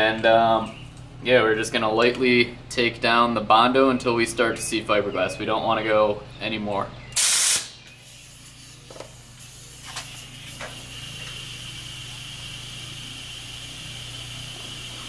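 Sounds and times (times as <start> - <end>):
loud burst of noise: 7.2 - 7.8.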